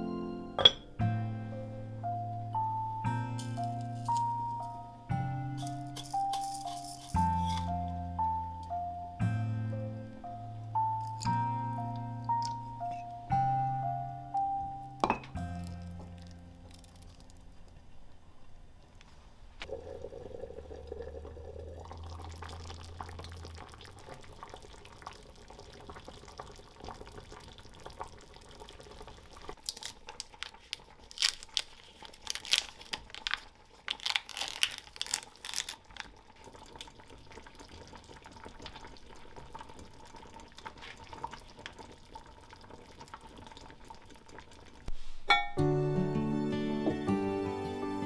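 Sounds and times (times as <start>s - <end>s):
plastic packet tearing: 5.6s - 7.7s, 29.6s - 36.1s
soup simmering and bubbling: 19.6s - 34.0s, 35.2s - 45.1s.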